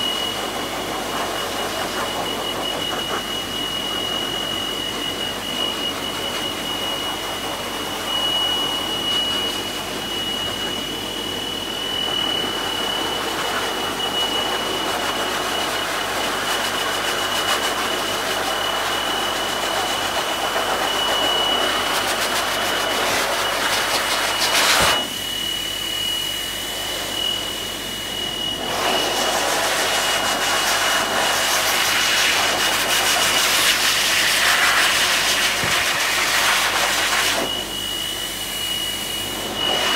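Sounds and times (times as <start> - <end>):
pet dryer blowing air: 0.0 - 39.9.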